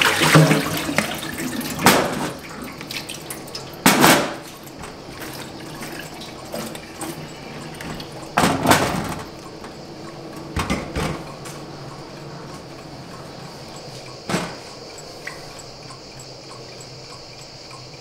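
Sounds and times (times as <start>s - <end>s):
plastic colander clattering: 3.8s - 7.2s.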